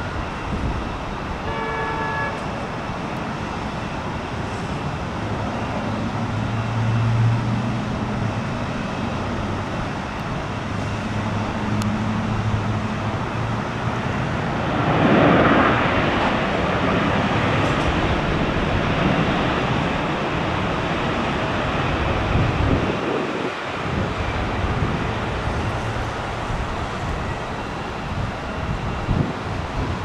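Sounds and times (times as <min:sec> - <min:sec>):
wind rushing: 0:13.8 - 0:30.0.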